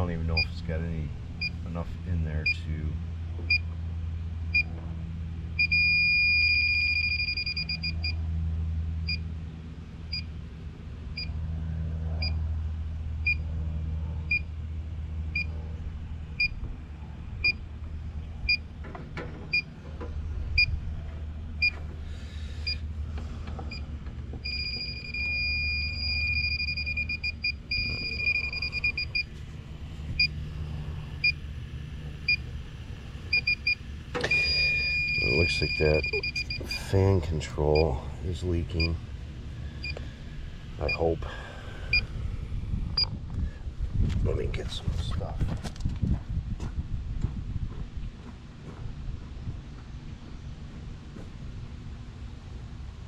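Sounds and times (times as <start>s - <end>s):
low steady hum: 0.0s - 53.0s
leak detector beeping: 0.3s - 0.6s, 4.5s - 4.7s, 5.6s - 8.2s, 10.1s - 10.3s, 13.2s - 13.4s, 14.3s - 14.5s, 15.3s - 15.5s, 23.7s - 29.4s, 30.2s - 30.4s, 31.2s - 31.4s, 32.2s - 32.4s, 33.3s - 37.0s, 39.8s - 40.0s, 40.8s - 41.1s
rapid alarm beep: 5.6s - 8.2s, 24.4s - 29.3s, 33.3s - 36.9s.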